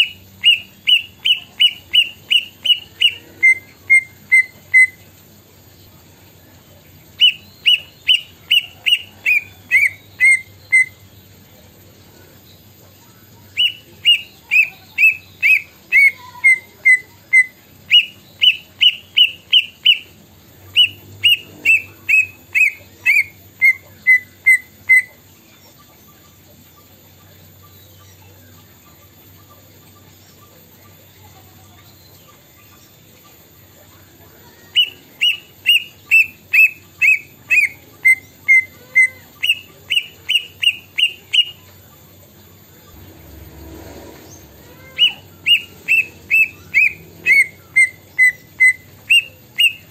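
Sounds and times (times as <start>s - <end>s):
bird singing whistled notes: 0.0s - 5.0s, 7.2s - 11.3s, 13.5s - 25.2s, 34.7s - 41.6s, 44.3s - 49.9s.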